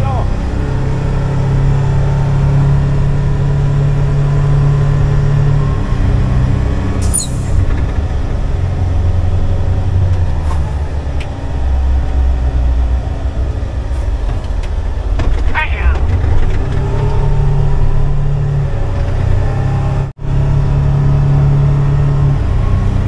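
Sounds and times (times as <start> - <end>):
truck diesel engine running: 0.0 - 23.0
brief high squeal: 7.0 - 7.6.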